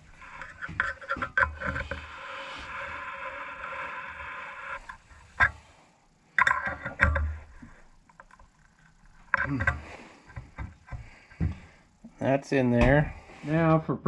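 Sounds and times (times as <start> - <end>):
metal scraping: 0.0 - 5.7.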